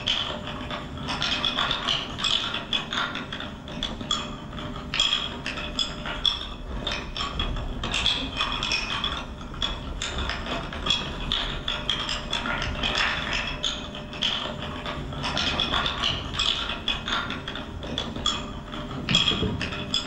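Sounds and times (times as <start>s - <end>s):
wooden bobbins clacking: 15.2s - 20.0s.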